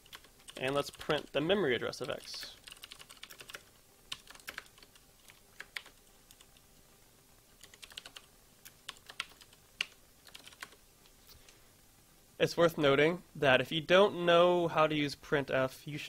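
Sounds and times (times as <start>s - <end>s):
keyboard typing clicks: 7.6s - 10.8s.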